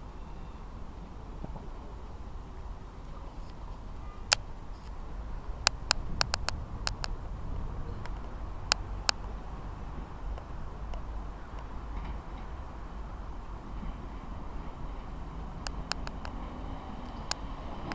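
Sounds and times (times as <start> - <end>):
low outdoor rumble: 0.0 - 17.9
sharp clicks: 5.6 - 7.2, 15.6 - 16.4.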